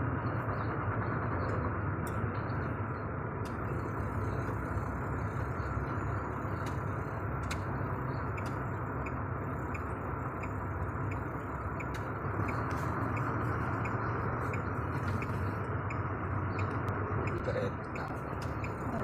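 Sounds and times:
engine low hum: 0.0 - 19.0
indicator relay ticking: 6.4 - 19.0.

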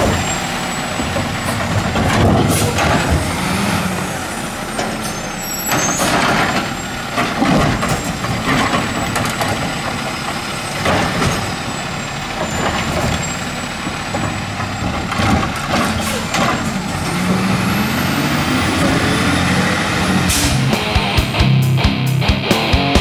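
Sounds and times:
hydraulic arm clunks: 0.0 - 17.7
diesel engine running: 0.0 - 23.0.

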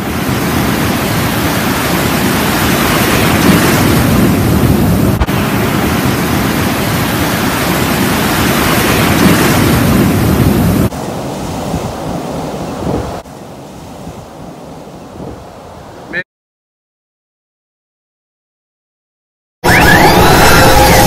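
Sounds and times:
ocean surf breaking: 0.0 - 16.2.

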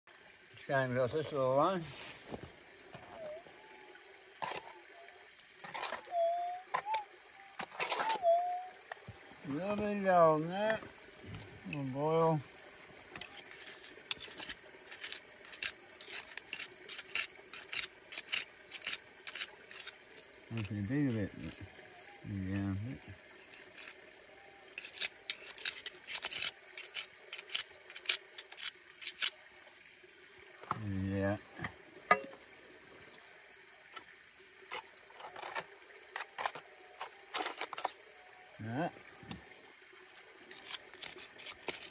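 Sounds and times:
metal scraping on rock: 13.2 - 21.6, 24.7 - 29.4, 34.7 - 38.0.

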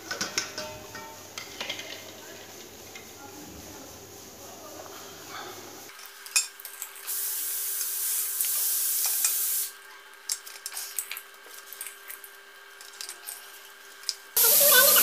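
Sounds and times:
steady hiss: 0.0 - 6.0, 6.8 - 9.8, 14.4 - 15.0.

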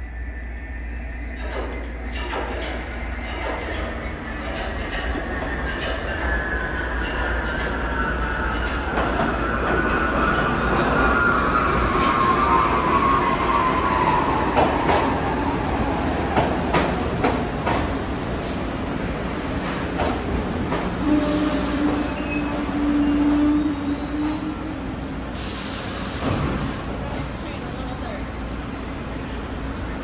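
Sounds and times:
subway train motor whine: 0.0 - 30.0
air hissing: 25.3 - 27.3.

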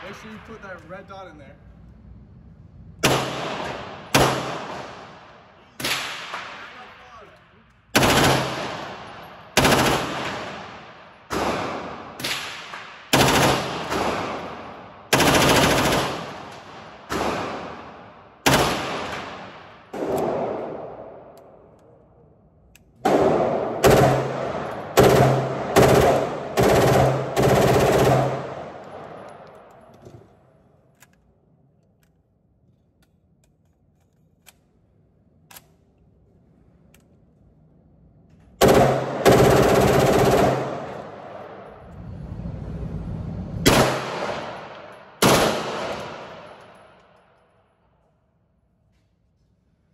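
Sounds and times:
gunshots with long echo: 3.0 - 7.2, 7.9 - 21.4, 23.0 - 29.8, 38.6 - 41.8, 43.6 - 47.2.

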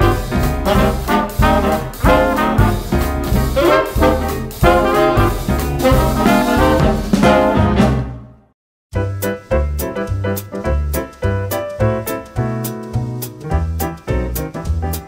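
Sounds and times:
upbeat background music: 0.0 - 8.3.

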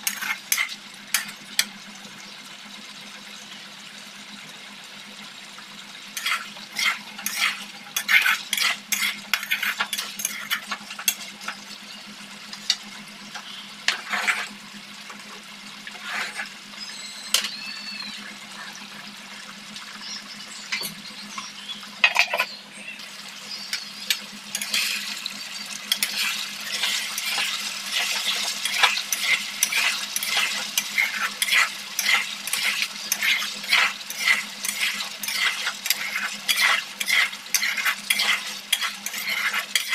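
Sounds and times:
metal spatula scraping a wok: 0.0 - 1.4, 6.2 - 11.5, 13.9 - 14.6, 15.9 - 16.5, 24.1 - 25.2, 25.9 - 39.9
food frying: 0.0 - 39.9.

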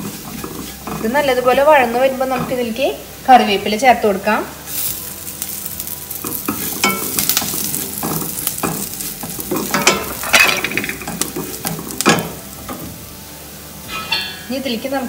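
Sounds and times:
wooden spatula scraping pan: 0.0 - 2.9
food sizzling in hot oil: 0.0 - 15.0.

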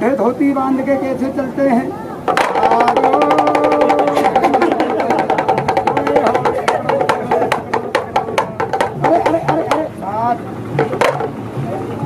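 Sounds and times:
pellet drum rattling: 2.3 - 11.6.

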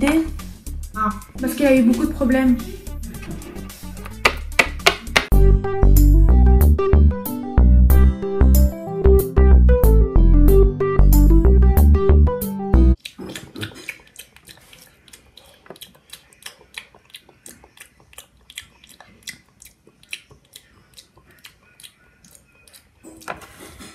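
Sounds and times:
music: 0.0 - 13.0
loud chewing and crunching: 13.0 - 23.9.

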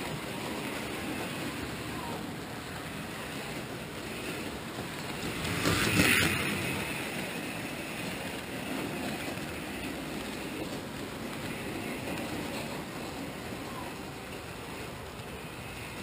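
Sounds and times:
model train rolling rumble: 0.0 - 16.0.

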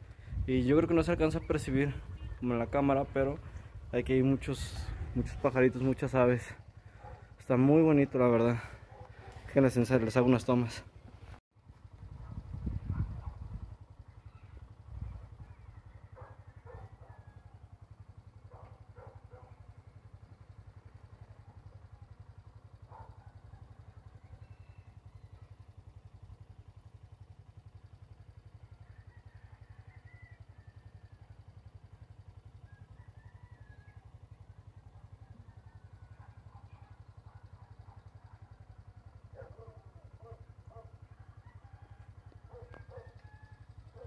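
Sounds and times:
steady low rumble: 0.0 - 8.0
faint birdsong chirps: 0.0 - 8.6, 13.2 - 41.5.

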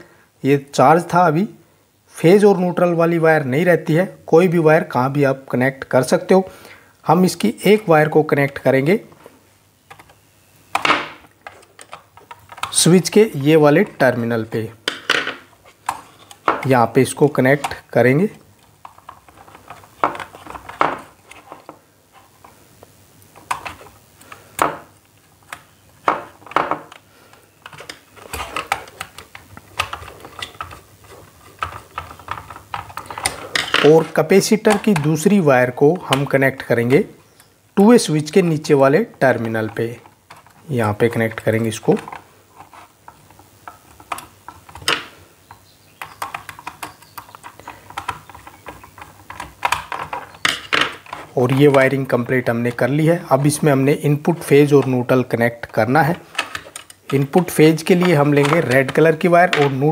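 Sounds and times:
plastic clicks and scrapes: 9.9 - 13.2, 14.8 - 16.7, 17.5 - 22.6, 23.2 - 35.3, 39.3 - 52.4, 54.4 - 59.9.

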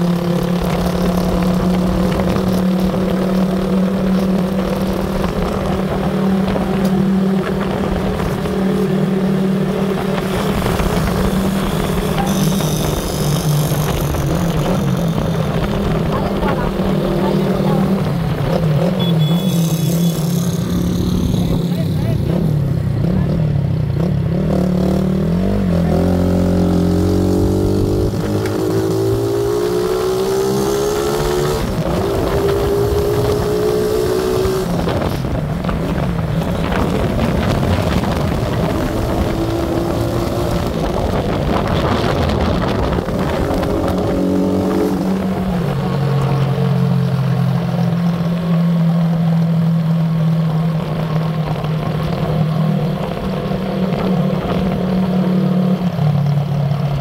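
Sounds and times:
motorcycle engine running: 0.0 - 57.0
wind over microphone: 25.7 - 48.3.

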